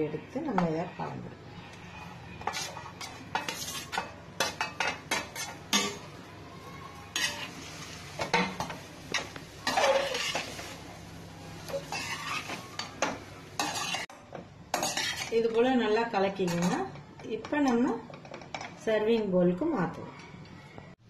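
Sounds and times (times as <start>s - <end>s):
metal ladle scraping a steel pan: 1.6s - 6.0s, 7.1s - 7.6s, 9.6s - 10.7s, 11.7s - 14.1s, 14.7s - 15.4s.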